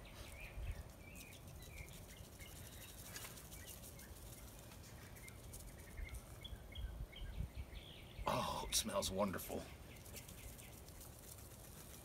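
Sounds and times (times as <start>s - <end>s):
bird chirps: 0.0s - 10.8s.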